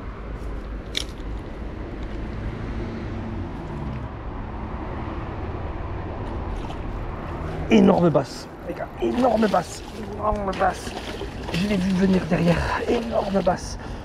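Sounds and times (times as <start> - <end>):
city traffic rumble: 0.0 - 14.0.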